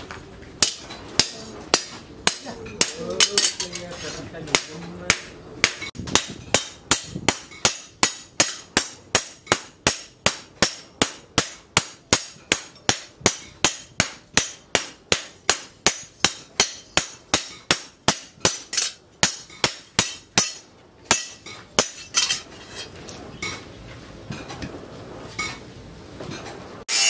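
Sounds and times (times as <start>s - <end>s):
hammers striking steel on anvil: 0.6s - 3.8s, 4.5s - 22.5s.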